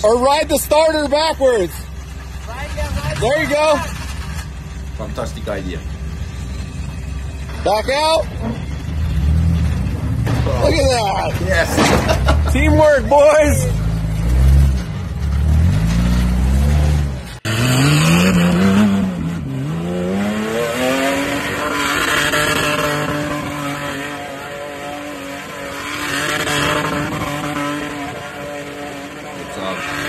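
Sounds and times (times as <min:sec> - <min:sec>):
engine revving hard: 0:14.1 - 0:30.0.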